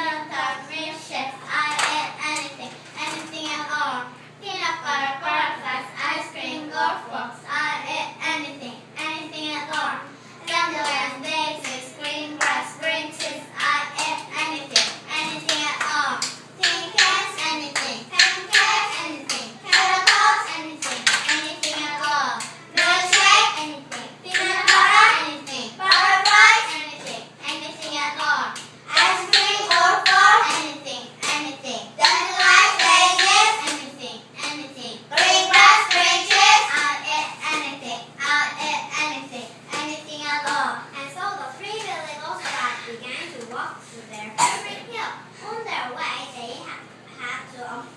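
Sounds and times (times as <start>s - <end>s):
young children singing: 7.8s - 40.9s
hand claps: 11.6s - 12.6s, 13.2s - 37.7s
children singing in chorus: 16.6s - 22.1s, 24.3s - 26.8s, 28.9s - 31.4s, 32.0s - 33.7s, 35.1s - 37.6s.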